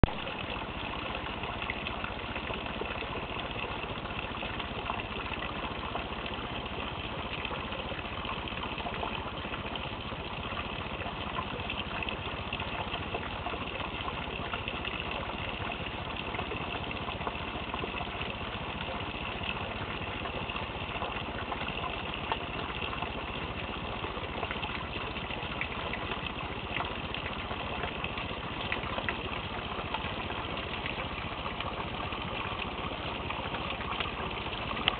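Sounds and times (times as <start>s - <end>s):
raindrop ticks: 34.0s - 34.9s.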